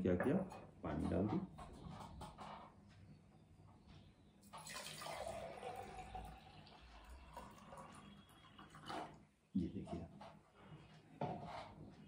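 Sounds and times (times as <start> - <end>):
water pouring into glass jar: 4.5 - 9.2.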